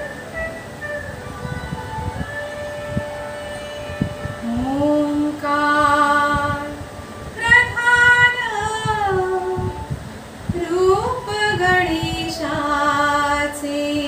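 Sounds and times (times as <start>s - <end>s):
woman singing devotional song: 3.4s - 14.0s.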